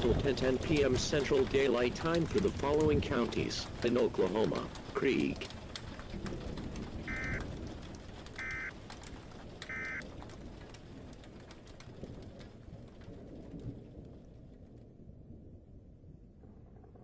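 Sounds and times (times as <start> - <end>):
static hiss with crackles: 0.0 - 15.0
buzzy data bursts: 7.1 - 7.4, 8.4 - 8.7.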